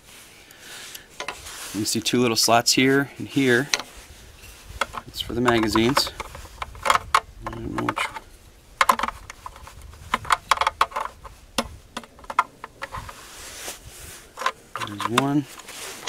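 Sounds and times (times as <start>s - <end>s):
plastic clicks and taps: 8.8s - 13.0s.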